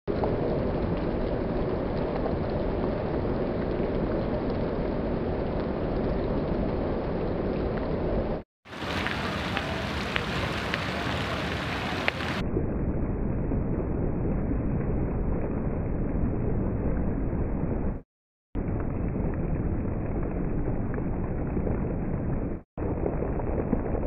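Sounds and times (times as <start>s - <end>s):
heavy rain on hard ground: 0.1s - 12.4s, 18.6s - 24.0s
raindrop splats: 0.1s - 12.4s, 18.6s - 24.0s.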